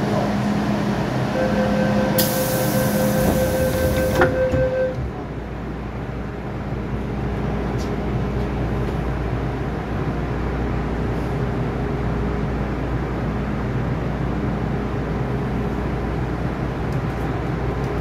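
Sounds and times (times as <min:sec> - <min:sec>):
train rumbling in tunnel: 0:00.0 - 0:18.0
train whine with hiss: 0:01.4 - 0:04.7.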